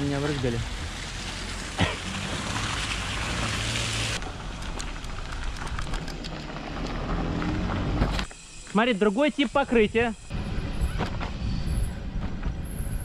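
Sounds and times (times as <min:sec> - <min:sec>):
tyres splashing through puddle: 0:00.0 - 0:08.1
wheels clicking over rough ground: 0:04.2 - 0:08.3.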